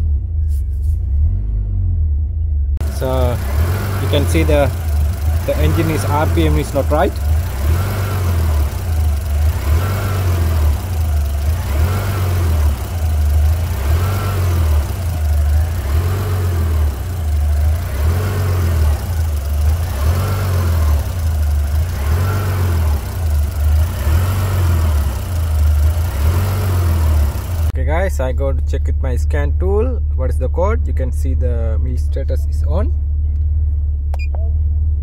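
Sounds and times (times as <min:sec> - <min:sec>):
car engine idling roughly: 0:02.8 - 0:27.8.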